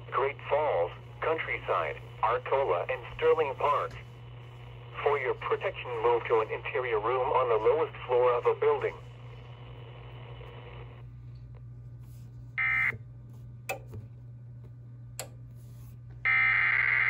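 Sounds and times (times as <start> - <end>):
faint radio hiss: 0.0 - 11.1.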